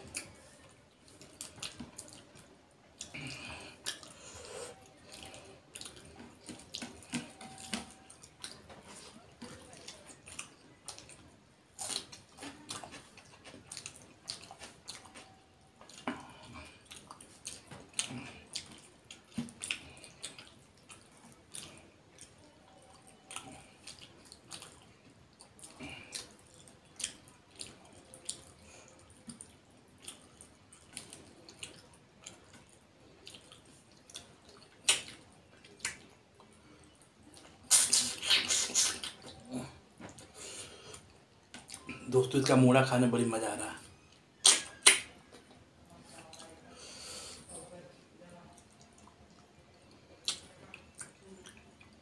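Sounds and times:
lips smacking while chewing: 23.0s - 42.0s, 44.4s - 45.6s, 48.6s - 52.0s.

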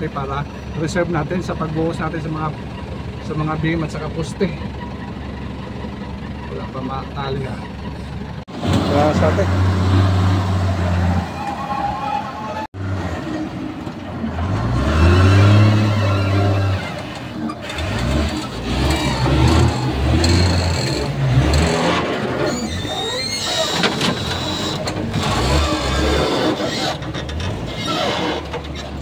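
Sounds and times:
vehicle engine revving: 6.4s - 11.4s, 12.7s - 29.0s
high squeal: 10.8s - 12.7s, 15.6s - 17.6s, 22.4s - 27.1s.

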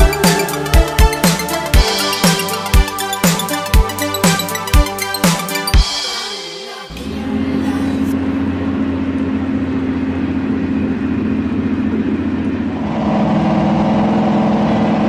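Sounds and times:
car engine running at low speed: 6.9s - 15.0s.

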